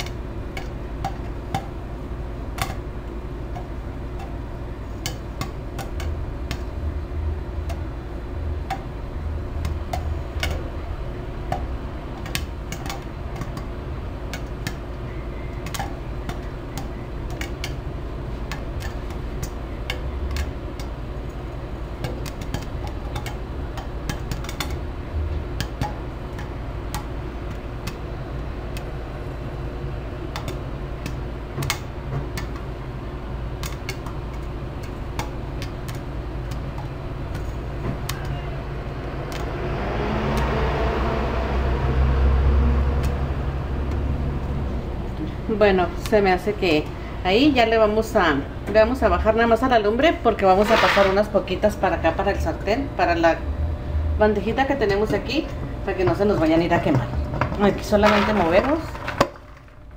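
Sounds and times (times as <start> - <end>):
steady low rumble: 0.0 - 32.1, 34.5 - 59.9
popcorn popping in a covered pot: 0.0 - 38.4, 54.9 - 59.9.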